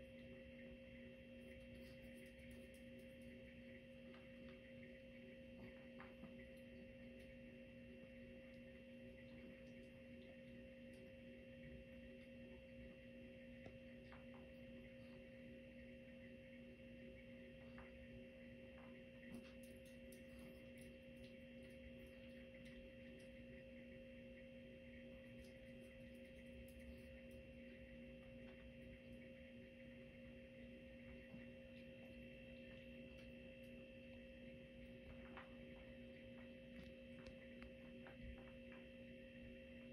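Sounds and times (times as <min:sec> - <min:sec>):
faint hum of held tones: 0:00.0 - 0:39.9.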